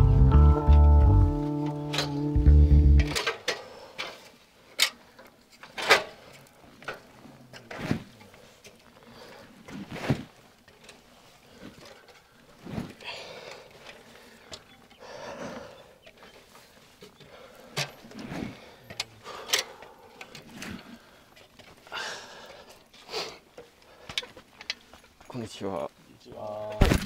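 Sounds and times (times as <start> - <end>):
rustling scuffs: 5.6 - 13.0.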